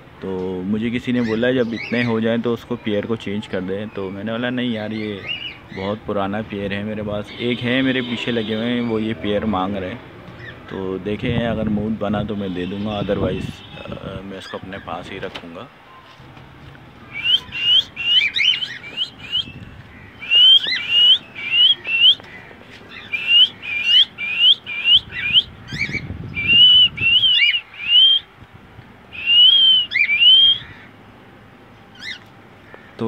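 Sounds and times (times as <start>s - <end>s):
cockatiels whistling: 17.1s - 19.6s, 20.2s - 22.3s, 22.9s - 28.3s, 29.1s - 30.8s, 31.9s - 32.3s.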